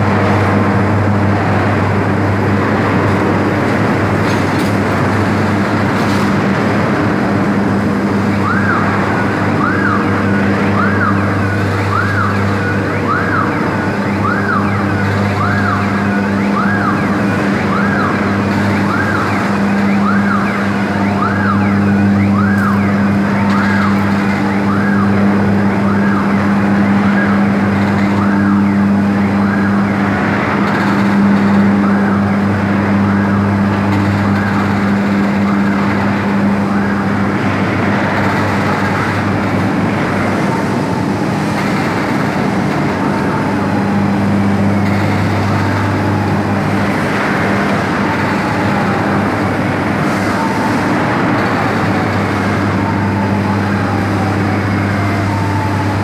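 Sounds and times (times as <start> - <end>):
crane warning siren: 0.0 - 56.0
low hum of machinery: 0.0 - 56.0.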